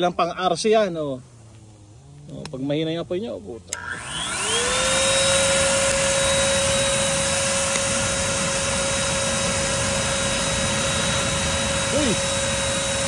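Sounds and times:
electric blower whining: 0:03.6 - 0:13.0.

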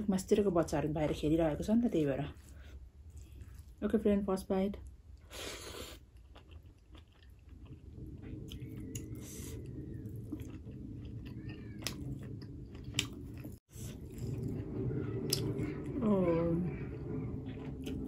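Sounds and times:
person chewing food: 0:02.4 - 0:03.8, 0:05.1 - 0:15.9, 0:16.8 - 0:18.0.

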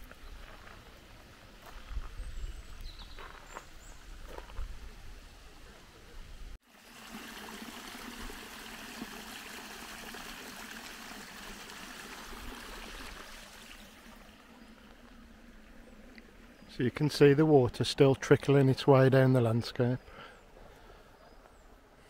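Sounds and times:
stream trickling: 0:06.6 - 0:18.8.

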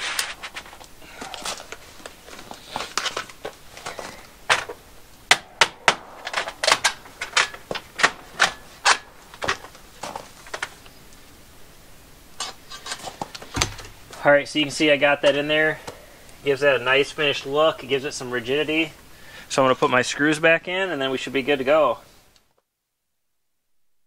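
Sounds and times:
metal scraping: 0:00.0 - 0:11.0, 0:12.3 - 0:14.0.

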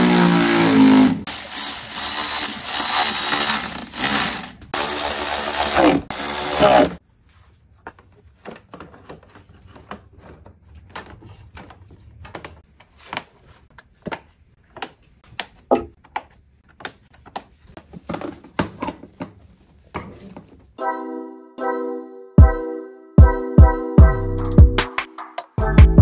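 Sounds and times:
hand tools clicking and knocking: 0:01.3 - 0:05.0.

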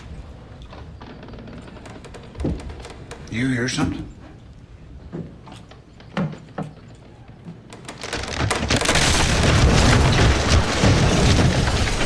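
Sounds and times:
sharp wooden knocks: 0:06.0 - 0:06.9, 0:07.5 - 0:12.0
wooden building collapsing: 0:06.1 - 0:12.0.

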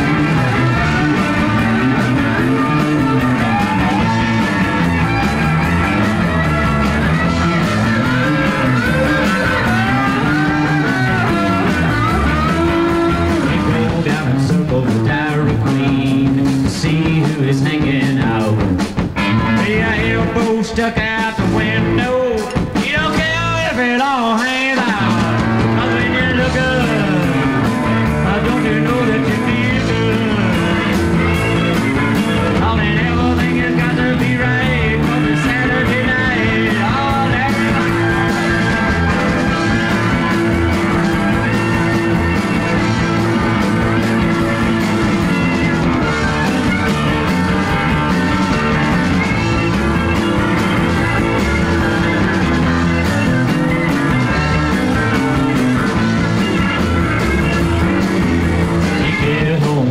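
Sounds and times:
country rock band playing: 0:00.0 - 0:59.9.

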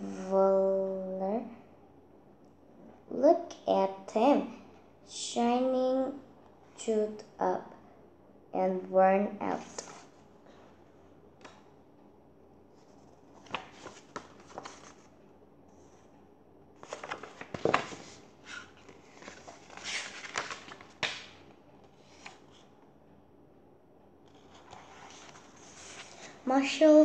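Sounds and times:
book pages rustling: 0:09.7 - 0:10.2, 0:12.8 - 0:15.2, 0:16.8 - 0:22.7, 0:24.3 - 0:26.8.

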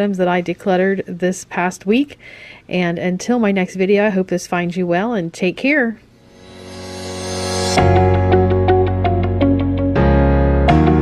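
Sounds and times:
background music swell: 0:06.2 - 0:11.0
bass line with keyboard notes: 0:06.8 - 0:11.0.

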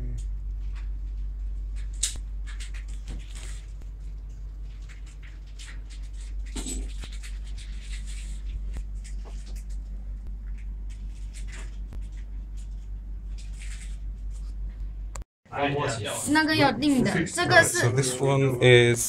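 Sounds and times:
steady low hum: 0:00.0 - 0:19.0
rustles and scrapes: 0:00.6 - 0:14.8.

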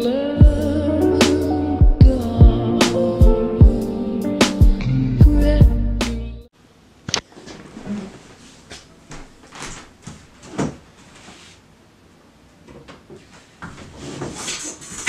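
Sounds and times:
knocks and rustles: 0:07.1 - 0:11.3.

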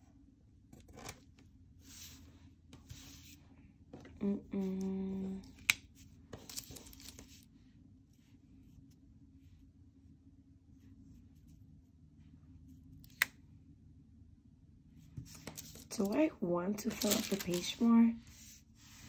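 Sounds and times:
person humming: 0:04.2 - 0:05.5
paper stickers rustling: 0:06.3 - 0:07.4, 0:15.2 - 0:18.5.

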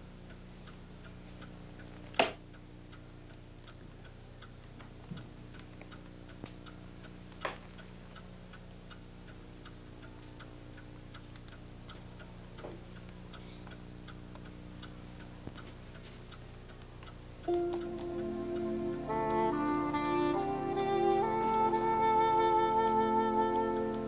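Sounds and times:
clock ticking: 0:00.0 - 0:24.0
low steady hum: 0:00.0 - 0:24.0.

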